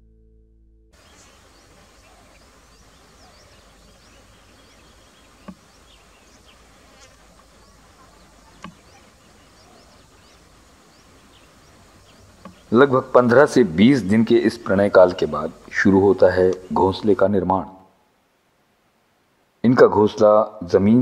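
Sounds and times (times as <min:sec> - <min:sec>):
insect-like buzzing hiss: 0:01.0 - 0:15.8.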